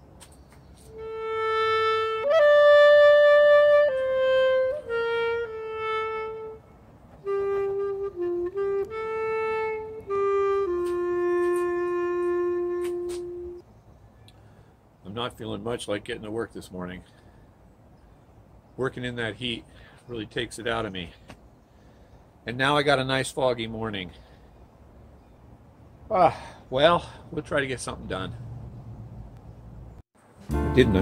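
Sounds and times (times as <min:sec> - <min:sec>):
slow reed instrument melody: 0:00.9 - 0:13.6.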